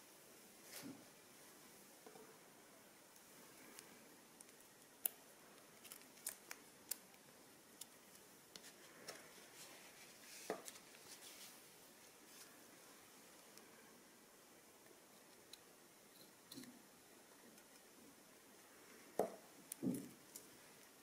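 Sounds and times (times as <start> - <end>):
faint sharp clicks and snips: 3.1 - 9.2, 14.8 - 16.8.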